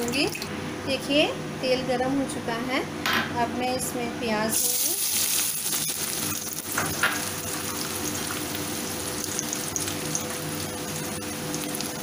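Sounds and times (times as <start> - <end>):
onions sizzling in hot oil: 4.5 - 12.0.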